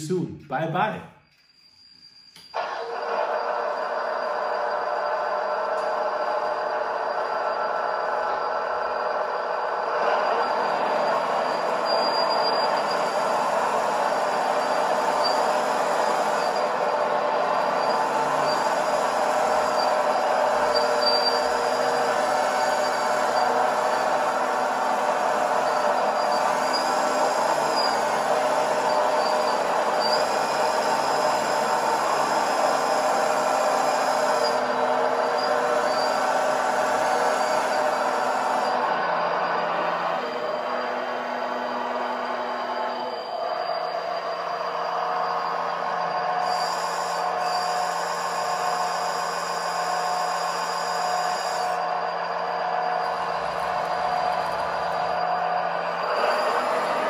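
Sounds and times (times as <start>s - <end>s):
model excavator hydraulic whine: 1.0s - 57.0s
high hydraulic hiss: 35.4s - 38.8s, 43.5s - 57.0s.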